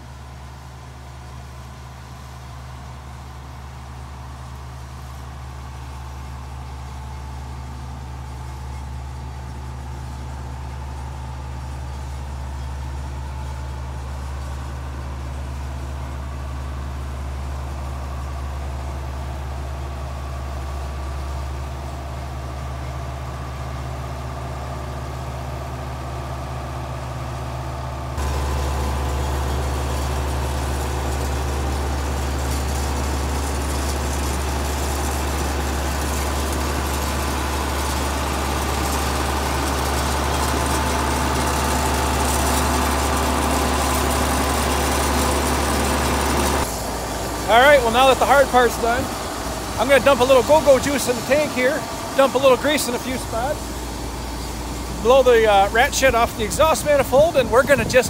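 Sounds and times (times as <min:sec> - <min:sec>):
combine engine running: 0:00.0 - 0:58.0.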